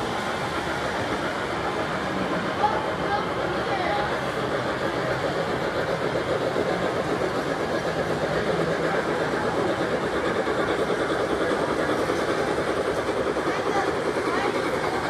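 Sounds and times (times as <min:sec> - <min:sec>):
model train wheels rattling: 0:00.0 - 0:15.0.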